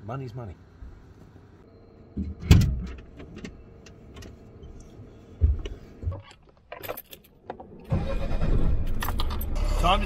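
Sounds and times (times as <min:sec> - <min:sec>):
dull thumps in cab: 0:05.4 - 0:06.3
keys jangling in ignition: 0:06.7 - 0:07.4, 0:08.8 - 0:09.7.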